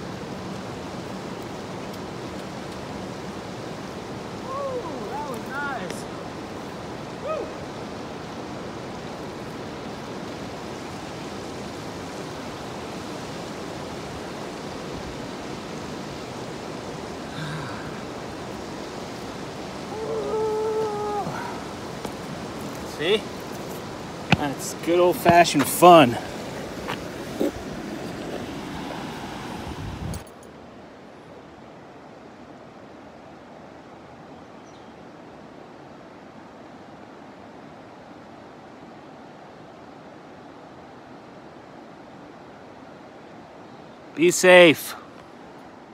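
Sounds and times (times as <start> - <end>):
faint outdoor hiss: 0.0 - 45.9
steady rushing air or water: 0.0 - 45.9.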